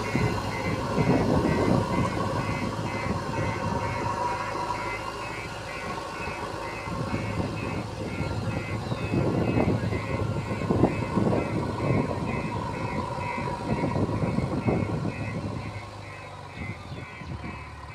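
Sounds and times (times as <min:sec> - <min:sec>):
diesel engine under load: 0:00.0 - 0:17.9
high reversing beep: 0:00.0 - 0:17.9.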